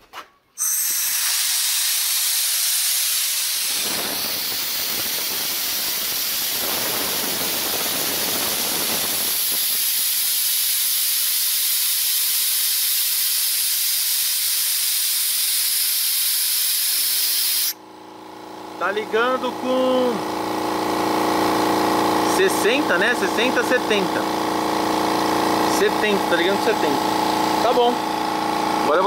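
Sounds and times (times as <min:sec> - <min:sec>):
compressed air hissing: 0:00.6 - 0:17.8.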